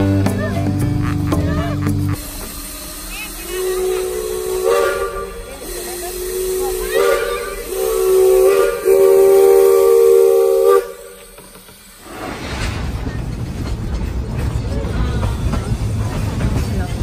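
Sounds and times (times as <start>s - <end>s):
steam locomotive whistle blasts: 2.9s - 11.5s.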